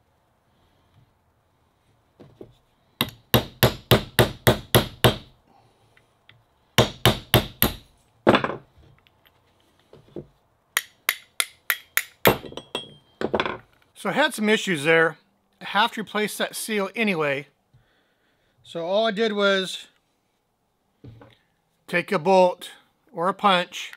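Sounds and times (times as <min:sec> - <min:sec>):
hammer striking metal: 0:10.8 - 0:13.0.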